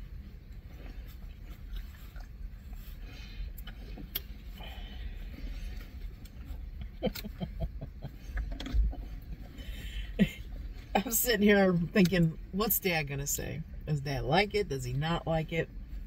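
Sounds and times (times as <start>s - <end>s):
car cabin rumble: 0.0s - 16.0s
chewing and mouth noises: 0.2s - 7.4s.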